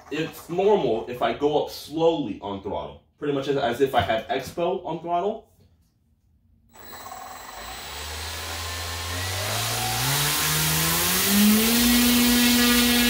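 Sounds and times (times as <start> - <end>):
electric motor propeller whine: 6.8 - 13.0.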